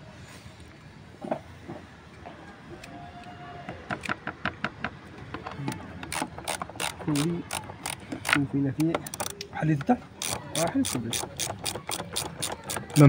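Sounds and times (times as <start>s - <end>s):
ratchet wrench clicking: 5.6s - 9.5s, 10.2s - 13.0s.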